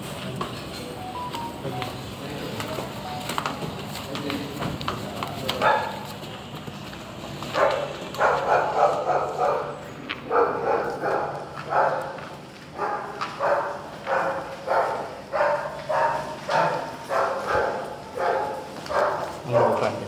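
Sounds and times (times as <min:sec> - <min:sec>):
dog barking: 0:05.6 - 0:06.0, 0:07.5 - 0:20.0.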